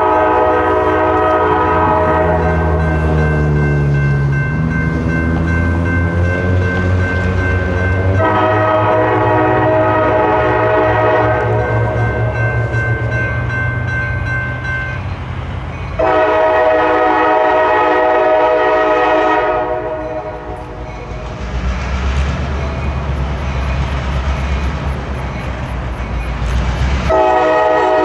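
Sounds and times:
locomotive air horn blasts: 0.0 - 3.0, 8.2 - 12.2, 16.0 - 20.6, 27.1 - 28.0.

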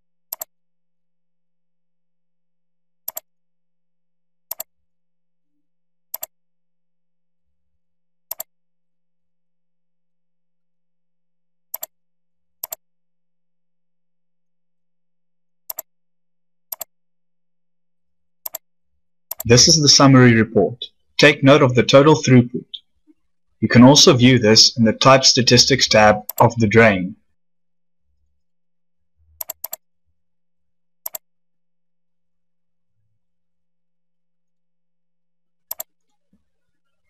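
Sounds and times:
computer mouse clicks: 0.3 - 0.5, 3.1 - 3.3, 8.3 - 8.5, 15.7 - 15.9, 16.7 - 16.9, 18.4 - 18.6, 29.4 - 29.8, 31.0 - 31.2, 35.7 - 36.2.

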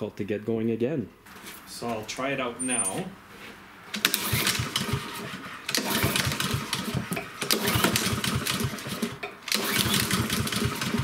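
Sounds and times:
lawnmower engine cranking: 3.9 - 11.0.

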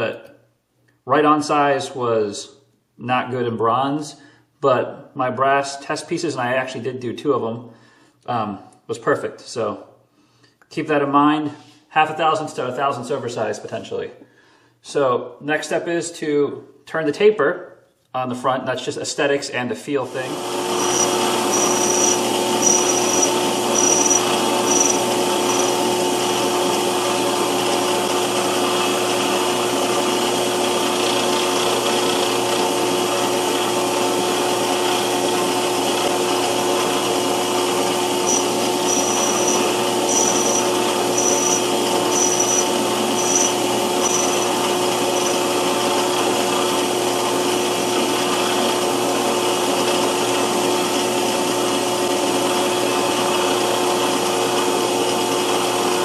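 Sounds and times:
lathe motor hum: 20.4 - 28.4, 37.7 - 46.7
cutting tool on metal: 20.6 - 25.9, 38.2 - 45.5.

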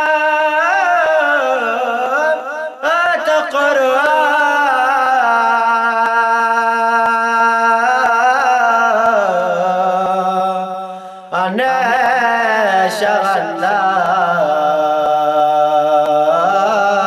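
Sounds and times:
man singing: 0.0 - 17.0.

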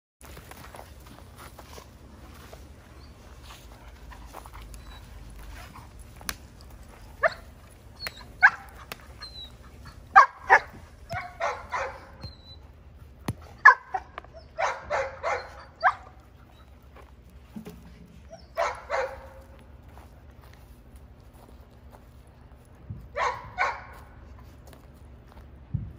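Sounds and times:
puppy barking: 7.0 - 12.6, 13.5 - 16.2, 18.3 - 19.6, 23.1 - 24.2.

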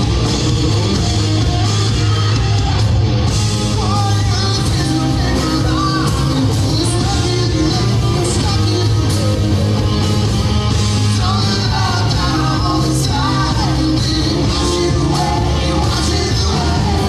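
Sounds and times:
live rock band: 0.0 - 17.0
man singing: 3.7 - 10.0, 11.0 - 17.0.

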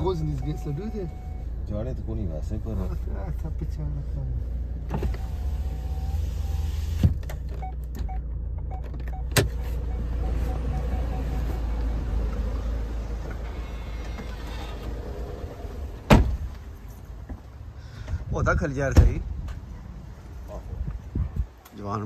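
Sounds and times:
parking sensor beeps: 0.0 - 1.5, 7.6 - 12.2
car engine and road rumble: 0.0 - 22.0.

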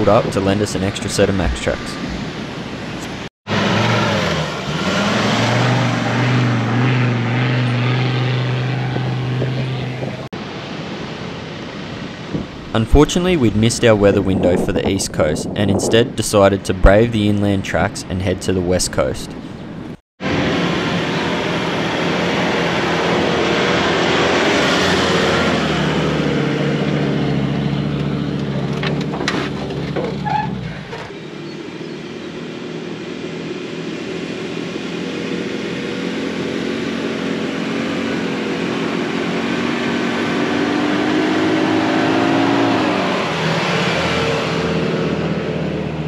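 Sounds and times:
vehicle engine working steadily: 6.6 - 10.5, 19.3 - 41.5.

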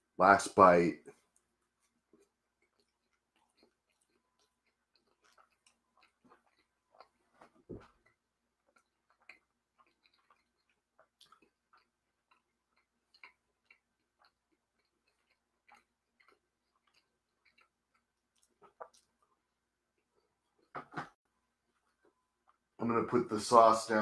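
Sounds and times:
close-up chewing: 1.1 - 20.8.

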